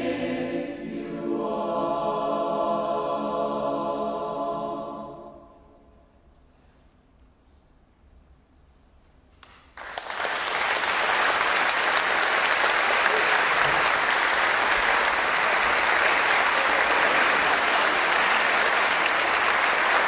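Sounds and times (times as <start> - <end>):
large crowd clapping: 9.4 - 20.0.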